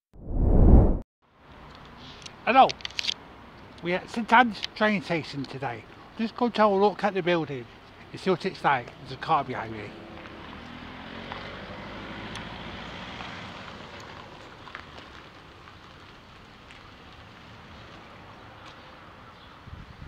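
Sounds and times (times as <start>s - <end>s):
car driving slowly past: 9.0s - 19.4s.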